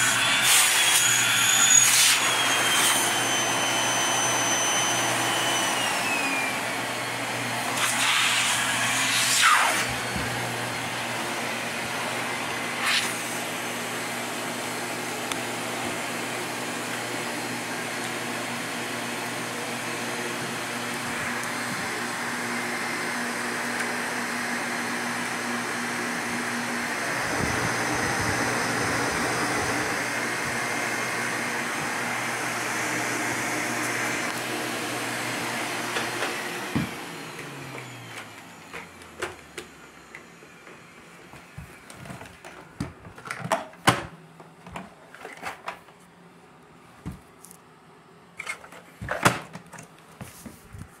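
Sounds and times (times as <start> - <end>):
vacuum cleaner running: 0.0 - 47.6, 48.4 - 51.0
motor winding down: 26.6 - 31.1.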